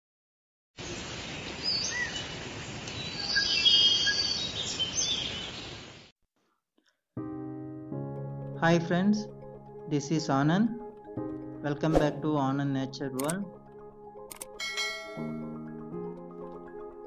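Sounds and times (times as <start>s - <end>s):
birds chirping and whistling: 1.6s - 2.3s, 3.0s - 5.8s
background music with chords: 7.2s - 17.0s.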